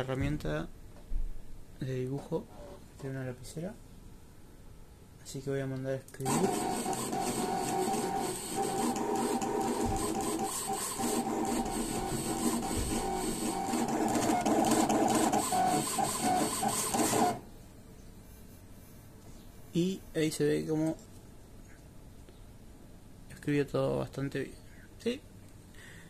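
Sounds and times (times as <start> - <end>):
plotter stepper motors whining: 6.2 - 17.4.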